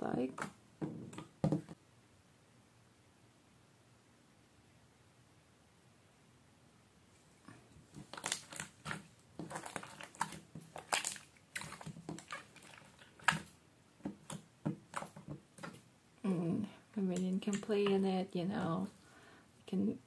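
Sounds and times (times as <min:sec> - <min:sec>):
slime squishing: 0:07.8 - 0:15.9, 0:17.0 - 0:19.0.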